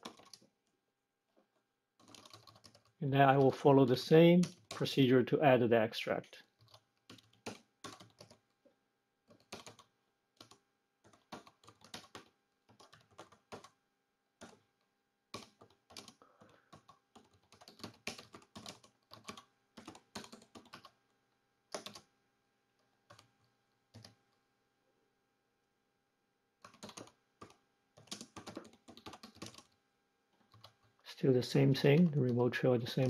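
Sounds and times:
typing on computer keyboard: 0.0s - 0.4s, 2.0s - 3.4s, 6.5s - 8.5s, 9.3s - 13.8s, 14.4s - 14.6s, 15.3s - 21.0s, 21.7s - 22.1s, 23.1s - 24.2s, 26.6s - 29.8s, 30.4s - 31.0s.

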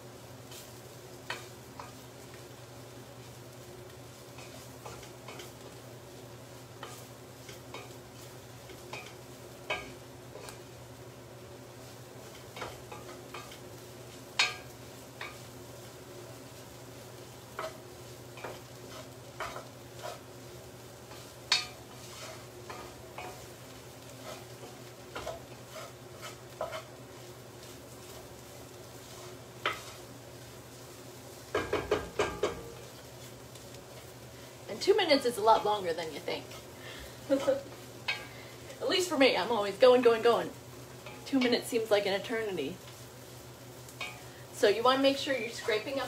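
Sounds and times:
faint sizzle: 0.0s - 46.0s
utensil scraping a pot: 18.4s - 20.3s, 21.1s - 23.5s, 24.1s - 26.9s.

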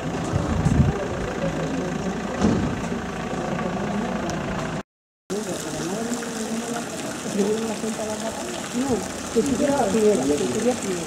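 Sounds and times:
vehicle engine idling: 0.0s - 4.8s.

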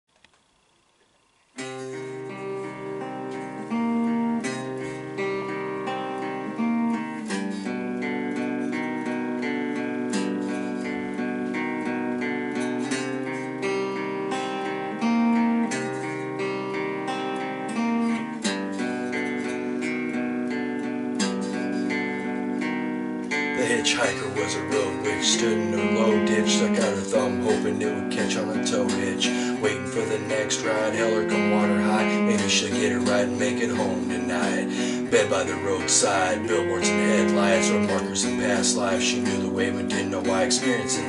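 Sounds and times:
electric guitar strumming chords: 1.5s - 41.0s.

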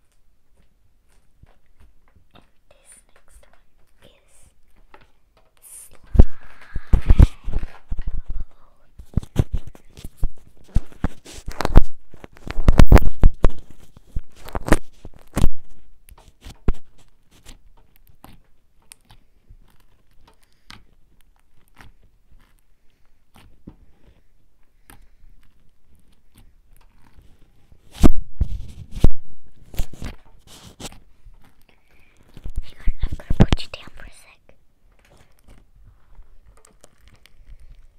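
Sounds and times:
cable handling clicks and knocks: 34.9s - 37.9s.

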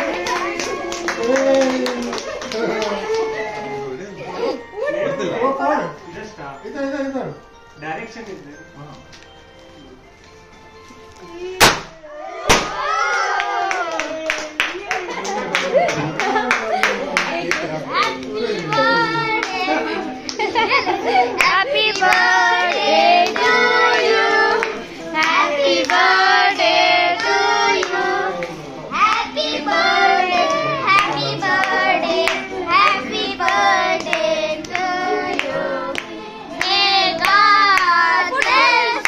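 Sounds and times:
hands clapping in rhythm: 0.0s - 3.3s, 13.4s - 20.5s, 21.4s - 28.5s, 30.4s - 39.0s
group of voices singing: 17.9s - 39.0s.

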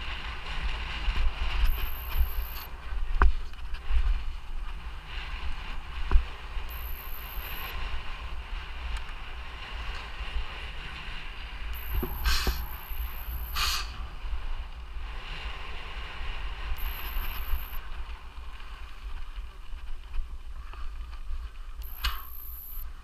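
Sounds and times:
rear hub ratchet buzz: 1.6s - 2.7s, 6.7s - 7.7s, 11.8s - 14.0s, 16.8s - 17.8s, 21.8s - 22.8s.

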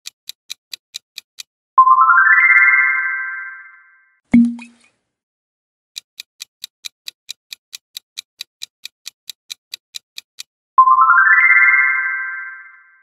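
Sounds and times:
clock ticking: 0.0s - 1.5s, 6.0s - 10.5s.

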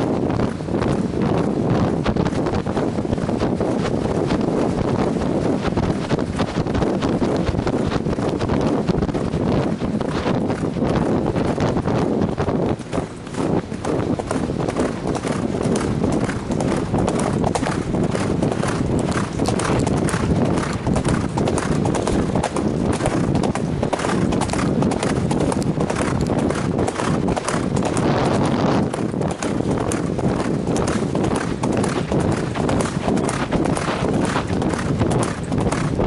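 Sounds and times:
hooves on gravel: 0.0s - 36.0s.

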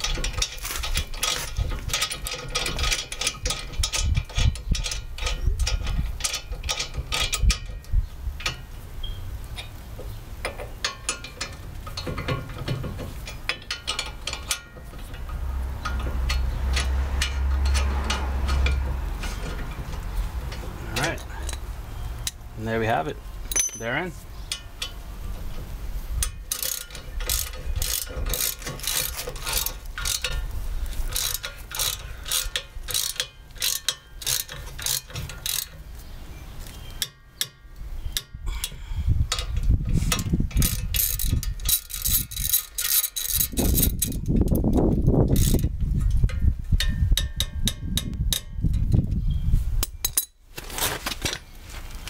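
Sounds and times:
ratchet wrench clicking: 0.0s - 7.8s, 10.4s - 22.4s, 26.2s - 35.8s, 38.2s - 48.9s
low rumbling: 11.5s - 26.5s.

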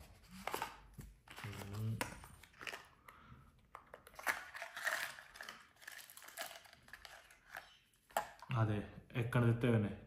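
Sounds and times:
packaging crinkling and rustling: 0.0s - 3.0s, 3.8s - 8.5s.

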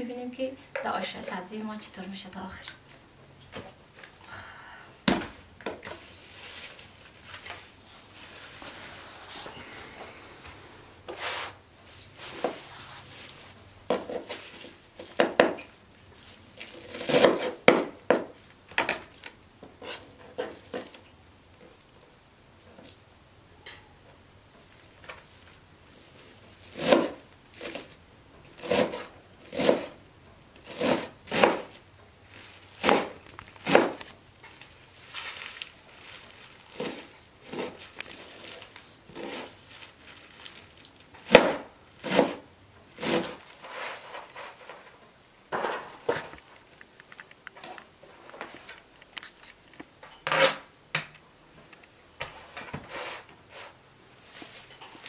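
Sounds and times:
knife chopping on plastic board: 30.7s - 31.7s, 32.8s - 34.0s.

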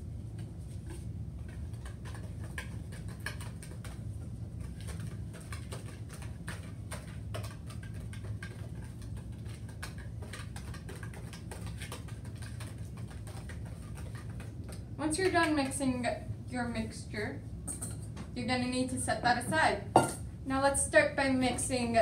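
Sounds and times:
steady low hum: 0.0s - 22.0s
whisk clicking against bowl: 0.4s - 16.0s.

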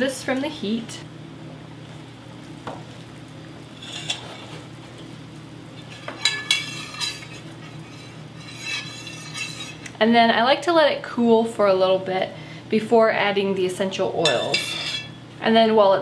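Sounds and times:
steady low hum: 0.0s - 16.0s
spoon scraping a metal pot: 3.8s - 4.6s, 5.9s - 9.9s, 14.2s - 15.2s.

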